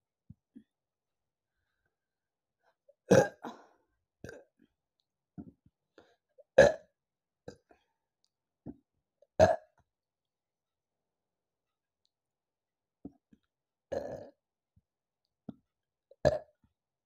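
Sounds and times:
woman burping: 3.1s - 3.6s, 13.9s - 14.4s.

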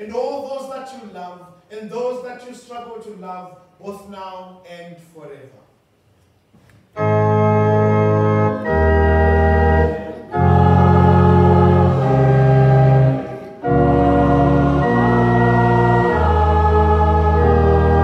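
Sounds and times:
organ playing sustained chords: 7.0s - 18.0s.

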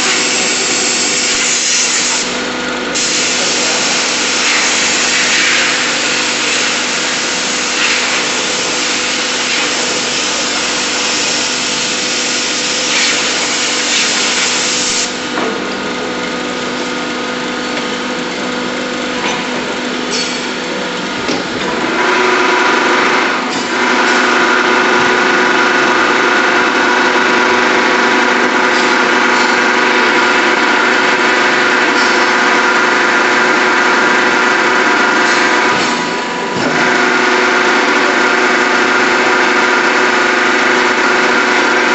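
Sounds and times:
air spray gun hissing: 0.0s - 15.3s
hydraulics running with even tones: 0.0s - 41.9s.

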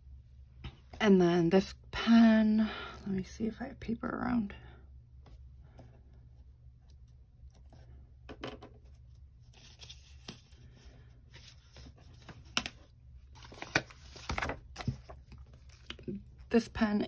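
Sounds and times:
low steady hum: 0.0s - 17.0s
paper rustling: 8.8s - 16.0s.

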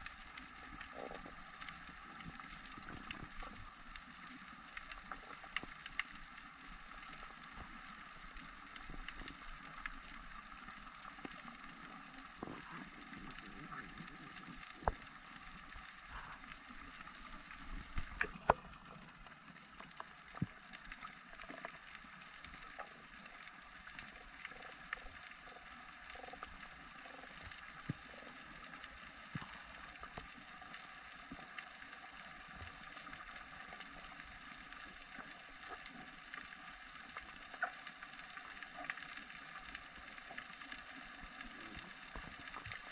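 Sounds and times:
faint underwater hiss: 0.0s - 42.9s
sharp underwater clicks: 17.1s - 18.8s.

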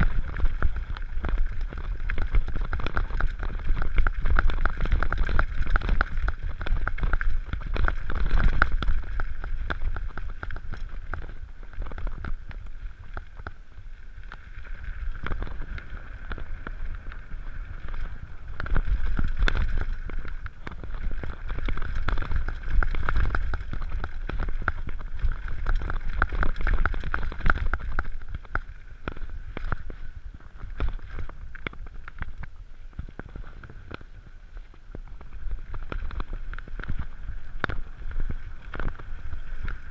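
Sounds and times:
bike rattling over bumps: 0.0s - 13.5s, 14.7s - 30.0s
tyres crunching on loose stones: 0.0s - 13.6s, 14.3s - 30.0s
wind on microphone: 0.0s - 39.9s.

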